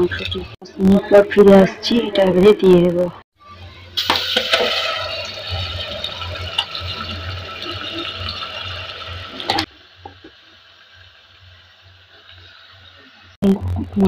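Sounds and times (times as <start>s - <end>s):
meat sizzling in hot oil: 4.0s - 13.4s.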